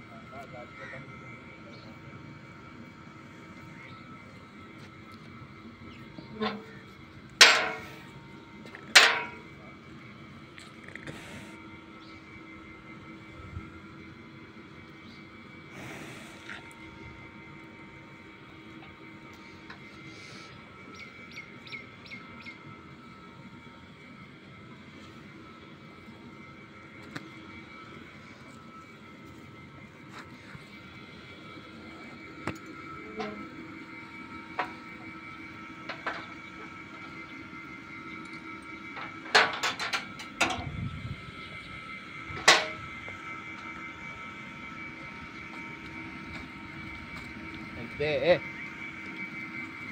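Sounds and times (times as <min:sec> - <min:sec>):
mechanical hum: 0:00.0 - 0:49.9.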